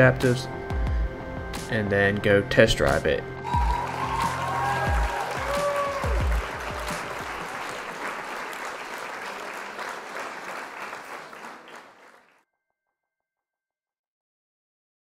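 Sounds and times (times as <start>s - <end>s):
crowd applause: 3.4s - 12.3s.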